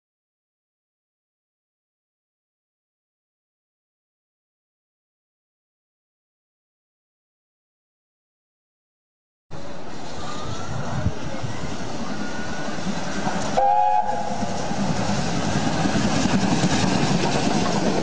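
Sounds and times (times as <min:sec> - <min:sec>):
steam locomotive running noise: 0:09.6 - 0:18.0
steam whistle blast: 0:13.5 - 0:14.5.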